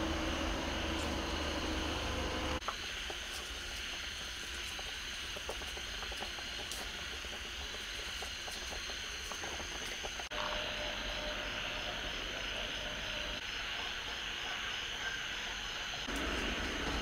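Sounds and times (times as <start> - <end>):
fish sizzling in oil: 2.6 - 11.1
high-pitched background drone: 10.2 - 17.0.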